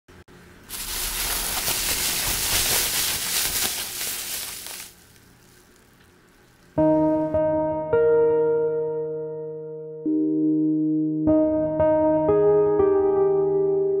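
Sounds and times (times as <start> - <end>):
bubble wrap crinkling: 0.7 - 6.7.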